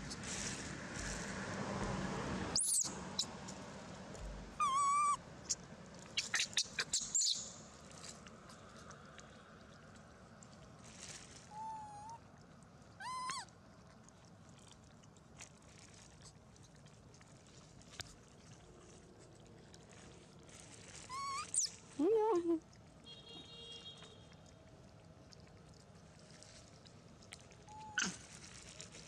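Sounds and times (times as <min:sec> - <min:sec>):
baby monkey whining coo calls: 0:02.6 - 0:03.3, 0:04.6 - 0:05.2, 0:06.2 - 0:07.4, 0:11.5 - 0:12.2, 0:13.0 - 0:13.5, 0:21.1 - 0:21.8, 0:27.7 - 0:28.2.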